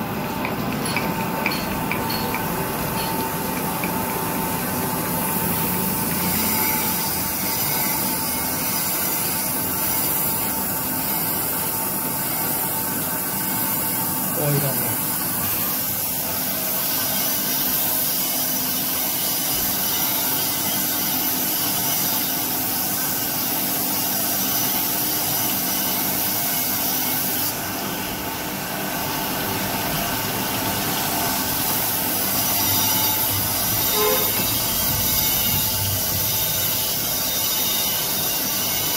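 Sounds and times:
grinding wheel on metal: 0:04.8 - 0:11.7, 0:30.8 - 0:38.9
machine motors humming: 0:28.3 - 0:38.9.

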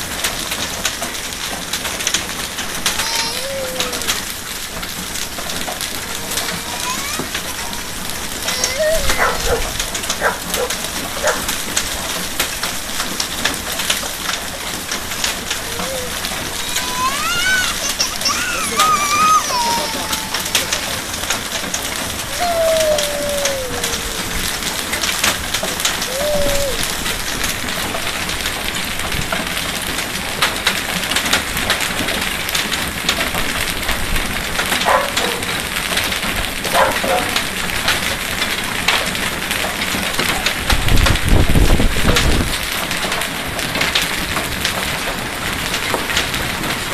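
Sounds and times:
hail and rain falling: 0:00.0 - 0:46.9
voice-like cries: 0:02.5 - 0:12.2, 0:13.9 - 0:27.8.

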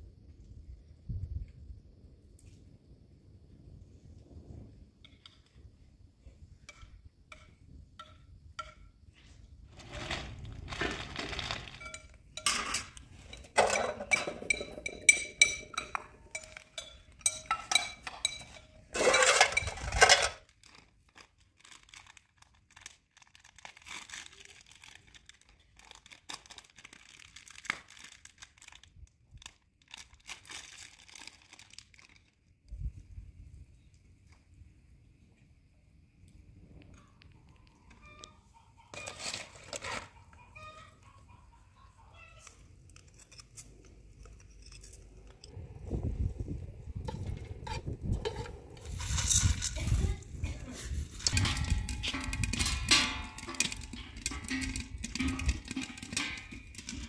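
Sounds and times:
rustling: 0:09.1 - 0:32.4, 0:42.4 - 0:57.0
metal cookware clattering: 0:09.8 - 0:20.4, 0:51.1 - 0:57.0.

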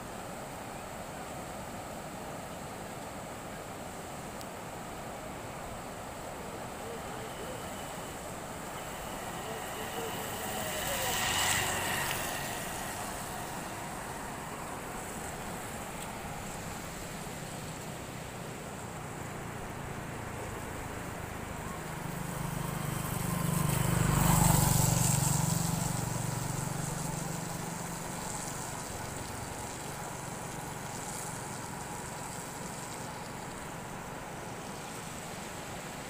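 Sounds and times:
river water rushing: 0:00.0 - 0:36.0
vehicle engine passing: 0:06.9 - 0:18.3, 0:19.4 - 0:31.9.

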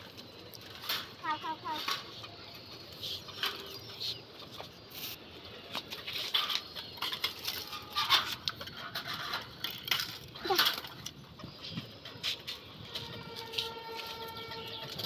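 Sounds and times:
pigeons moving in cages: 0:00.0 - 0:15.0
grain feed scattering into cages: 0:04.6 - 0:11.3.

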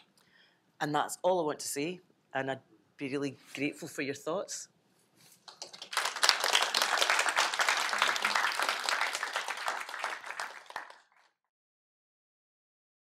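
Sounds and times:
audience applauding: 0:05.5 - 0:11.3.

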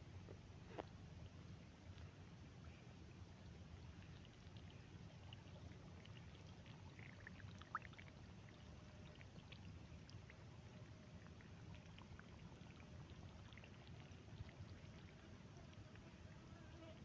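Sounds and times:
small water plinks: 0:01.9 - 0:16.3
water trickling: 0:03.2 - 0:16.4.

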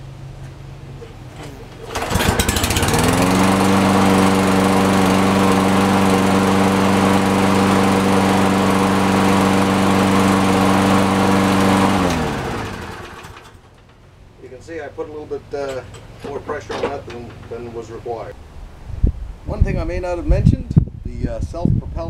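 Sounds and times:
lawn mower engine running: 0:01.3 - 0:18.2.

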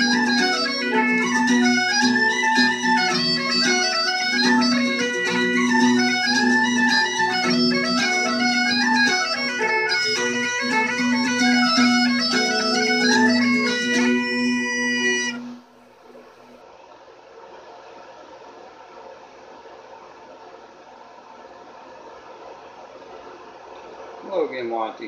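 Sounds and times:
bagpipe music: 0:00.0 - 0:15.8.

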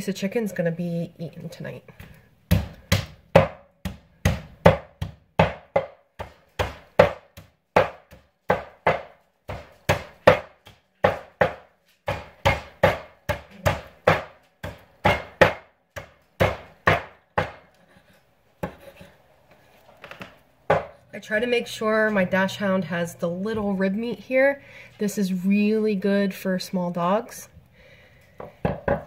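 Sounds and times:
hatchet chopping meat and bone: 0:02.5 - 0:17.8, 0:20.7 - 0:21.0.

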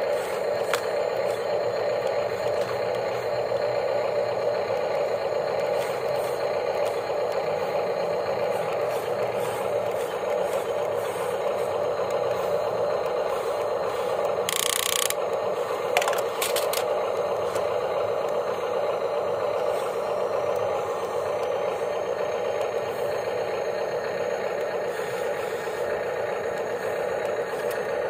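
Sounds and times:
toy motors and gears whirring: 0:00.0 - 0:28.0
sharp clicks: 0:14.4 - 0:15.4.

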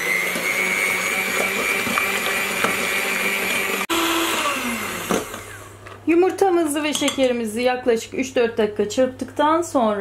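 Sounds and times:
electric hand mixer whining: 0:00.0 - 0:05.8.

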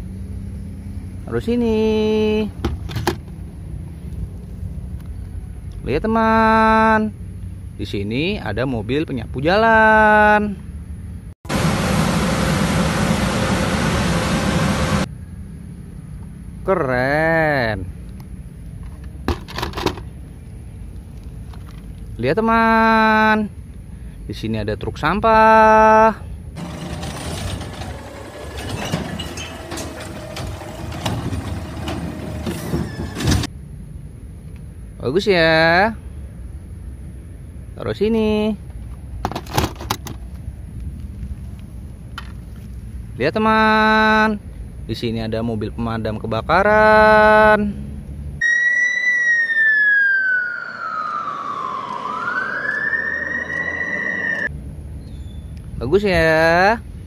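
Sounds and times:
steady whine: 0:11.5 - 0:16.3, 0:26.6 - 0:33.5, 0:48.4 - 0:54.5
garbage truck engine idling: 0:26.6 - 0:33.5
sharp metal clanks: 0:26.6 - 0:33.5
fire engine siren wailing: 0:48.4 - 0:54.5.

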